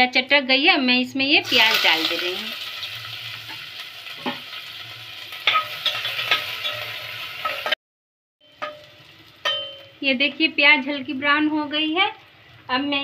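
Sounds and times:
onions sizzling in hot oil: 1.4 - 7.8, 8.4 - 13.0
spoon scraping a pot: 5.4 - 7.7.

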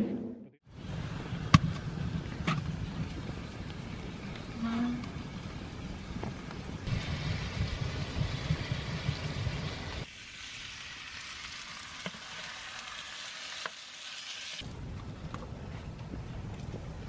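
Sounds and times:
meat sizzling in a frying pan: 7.0 - 14.6.

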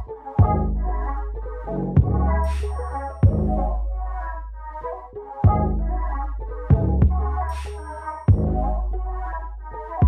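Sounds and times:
music with deep bass: 0.0 - 10.0
hard bass hit: 2.0 - 3.6, 6.7 - 7.4, 8.3 - 8.7.

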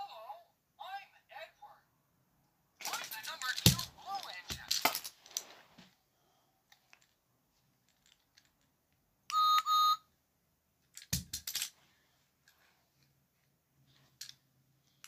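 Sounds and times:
short electronic beeps: 9.3 - 10.0.

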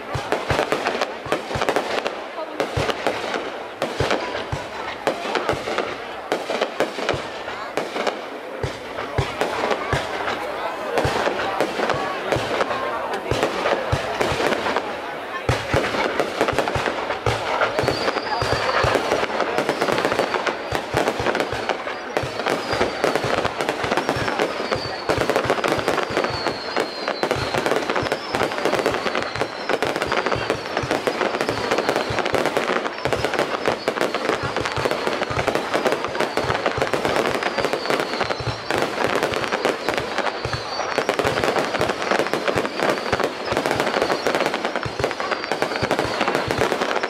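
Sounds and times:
fireworks bangs and crackles: 0.0 - 47.0
high falling firework whistle: 22.3 - 32.3, 36.0 - 46.3.

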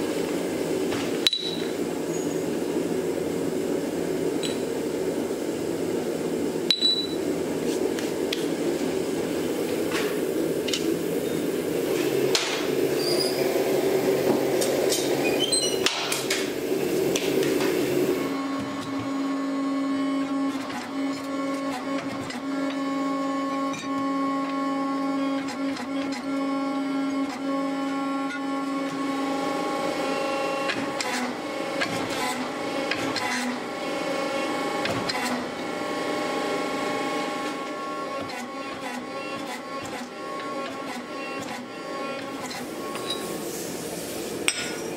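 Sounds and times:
gas burner rushing: 0.0 - 19.1, 42.5 - 44.9
hydraulic pump motor hum: 0.0 - 44.9.

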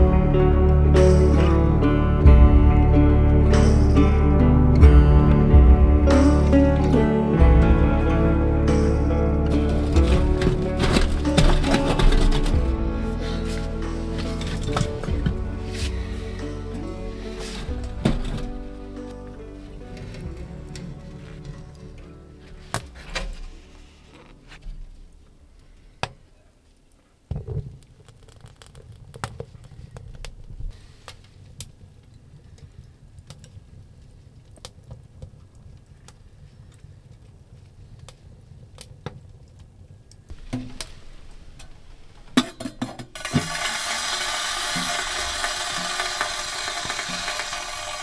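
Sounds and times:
wood fire crackling: 0.0 - 42.4, 43.1 - 48.0
stove draft rumble: 9.4 - 25.4, 40.3 - 48.0
loud steady hiss: 40.3 - 42.4, 43.1 - 48.0.

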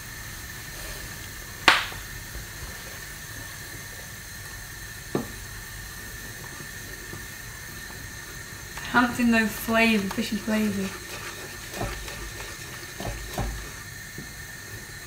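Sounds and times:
stock boiling in a pan: 0.0 - 15.0
sharp knock: 1.7 - 2.0.

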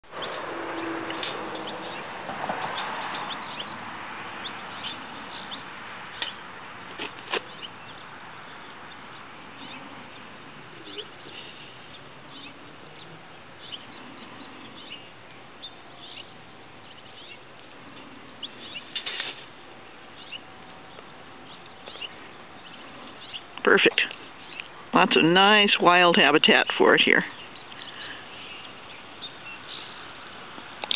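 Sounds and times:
steady outdoor hiss: 0.0 - 30.9
bird chirps: 7.4 - 17.5, 18.3 - 19.2, 20.1 - 24.7, 27.3 - 30.1.

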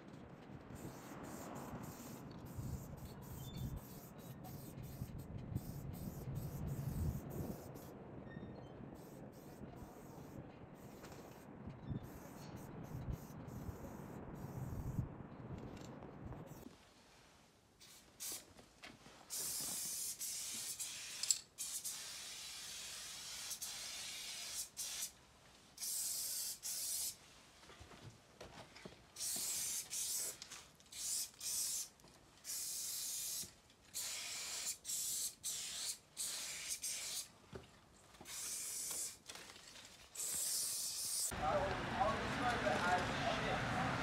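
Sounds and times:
aerosol spray can hissing: 0.8 - 7.9, 19.3 - 25.1, 25.8 - 27.2, 29.2 - 37.3, 38.2 - 39.2, 40.2 - 41.3.

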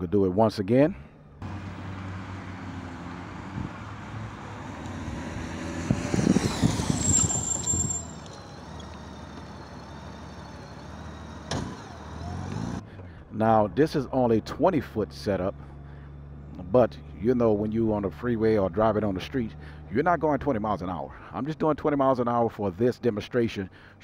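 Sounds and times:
brake squeal: 1.4 - 13.1
motorcycle riding up and braking: 1.4 - 13.1.

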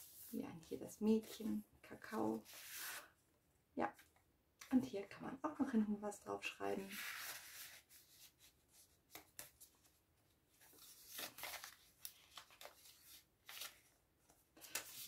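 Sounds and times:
paper pages rustling: 10.6 - 15.0.

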